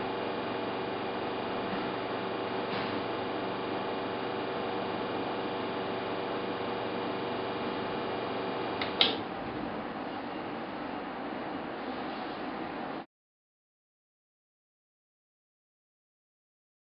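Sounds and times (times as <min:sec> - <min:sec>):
espresso machine pump humming: 0:00.0 - 0:09.8
espresso machine switch click: 0:08.8 - 0:09.2.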